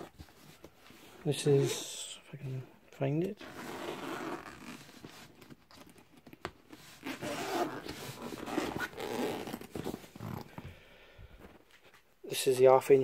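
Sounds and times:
zip being pulled open: 0:03.4 - 0:05.0, 0:06.9 - 0:10.5
fabric bag rustling: 0:03.6 - 0:10.6.

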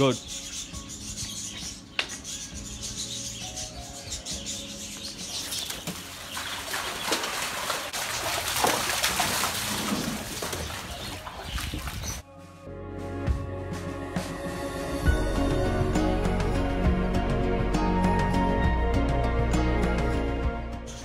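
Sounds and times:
music: 0:00.0 - 0:06.5, 0:11.0 - 0:21.0
dogs splashing through water: 0:05.0 - 0:12.2.

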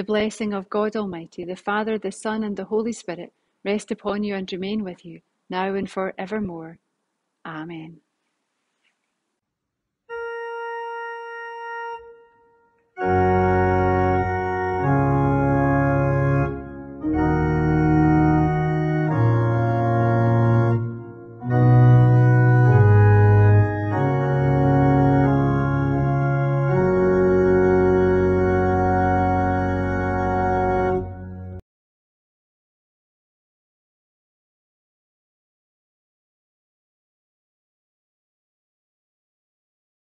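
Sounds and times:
organ chords: 0:10.0 - 0:31.6.

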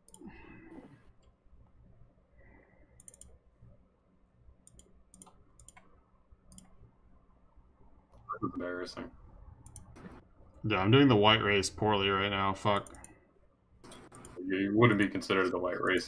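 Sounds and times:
faint computer clicks: 0:03.0 - 0:03.4, 0:04.6 - 0:06.8, 0:12.7 - 0:13.2.

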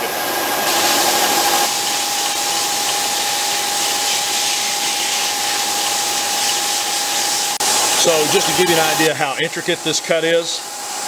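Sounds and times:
mill cutting metal whine: 0:00.0 - 0:11.0
air nozzle hissing: 0:00.7 - 0:09.0.

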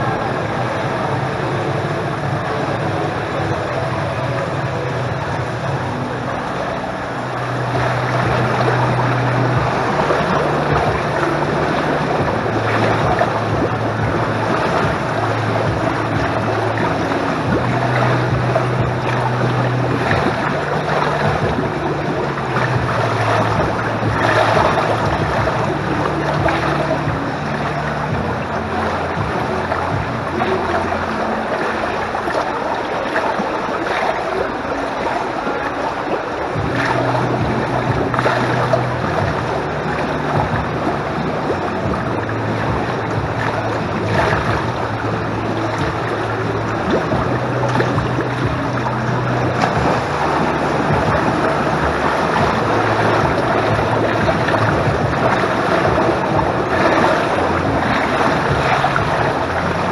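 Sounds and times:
low hum: 0:00.0 - 0:59.9
pool water splashing: 0:00.0 - 0:59.9.

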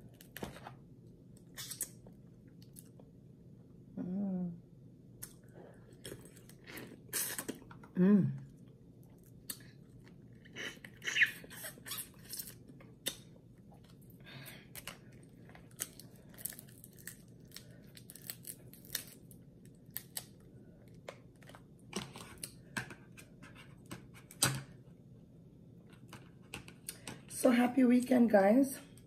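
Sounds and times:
crab shells cracking: 0:14.7 - 0:20.4.

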